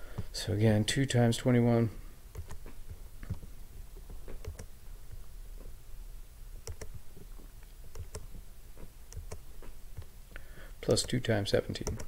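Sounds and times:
computer mouse clicks: 2.3 - 3.5, 4.3 - 4.7, 6.6 - 7.0, 7.9 - 8.4, 9.1 - 10.1, 11.0 - 11.2, 11.8 - 12.0.

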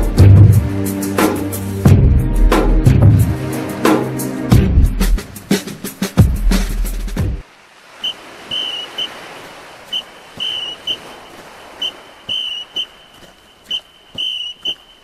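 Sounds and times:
whistle blasts: 8.0 - 9.2, 9.9 - 15.0.

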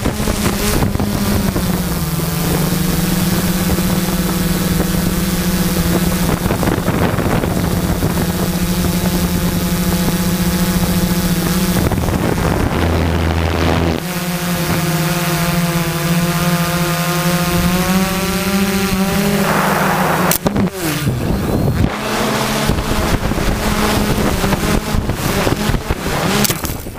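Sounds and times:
drone propellers whirring: 0.0 - 26.9
sharp crack: 19.3 - 20.9.

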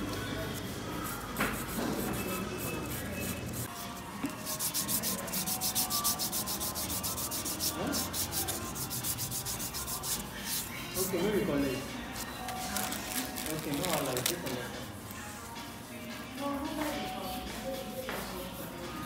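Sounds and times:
nail file rubbing fingernails: 1.1 - 11.2.

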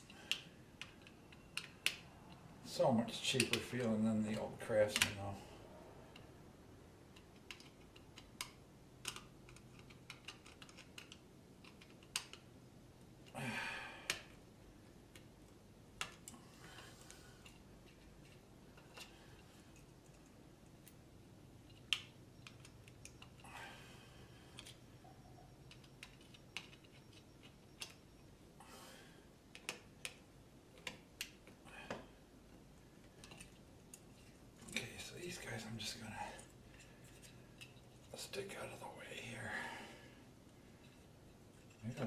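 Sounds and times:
small plastic clicks and taps: 7.1 - 12.4.

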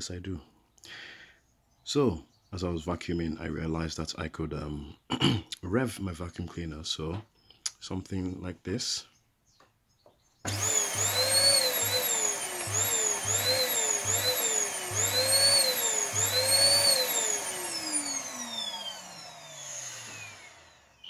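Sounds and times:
vacuum cleaner motor whine: 10.5 - 21.0.

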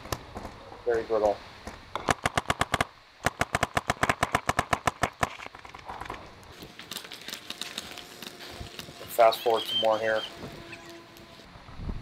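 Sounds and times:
paintball marker firing rapidly: 2.0 - 5.3.

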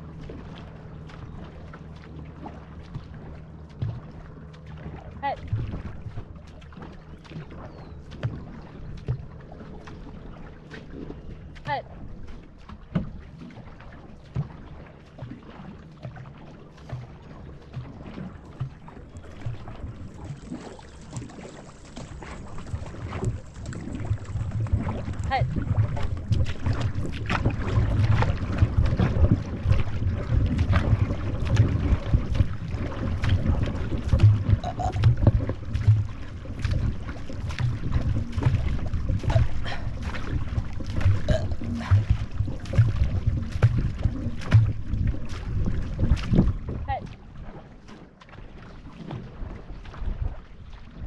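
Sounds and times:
paddle strokes thumping and splashing: 0.0 - 51.0
water rushing along hull: 0.0 - 51.0
paddle stroke thumps: 22.7 - 46.6.

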